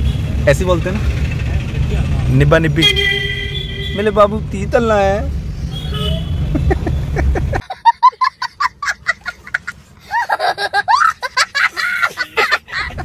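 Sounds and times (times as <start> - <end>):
young child laughing: 6.5 - 13.0.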